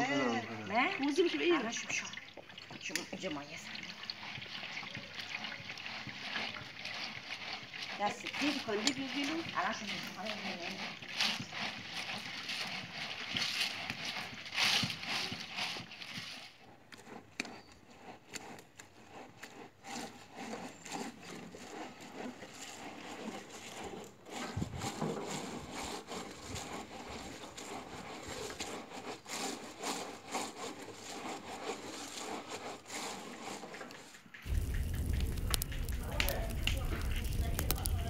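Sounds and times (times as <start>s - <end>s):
dry branches cracking and scraping: 18.5s - 38.0s.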